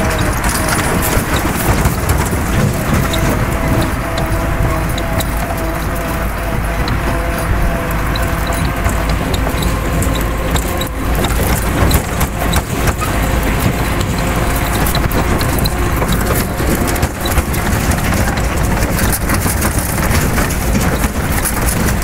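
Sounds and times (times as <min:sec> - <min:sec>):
tractor engine running: 0:00.0 - 0:22.0
trailer rattling and knocking: 0:00.0 - 0:22.0.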